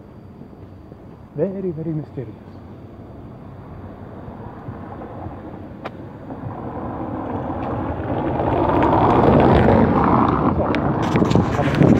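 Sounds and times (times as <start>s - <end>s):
road vehicle approaching: 2.6s - 11.9s.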